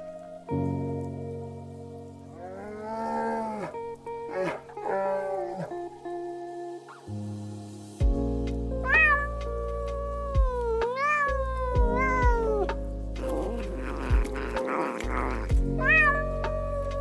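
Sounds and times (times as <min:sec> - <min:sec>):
background music: 0:00.0 - 0:17.0
cat meowing: 0:08.8 - 0:17.0.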